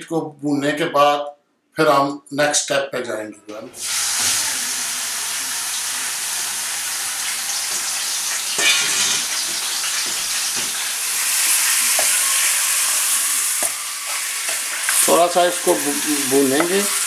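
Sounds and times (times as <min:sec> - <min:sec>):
meat sizzling in hot oil: 0:03.8 - 0:17.0
spatula knocking pan: 0:07.6 - 0:15.0, 0:16.4 - 0:17.0.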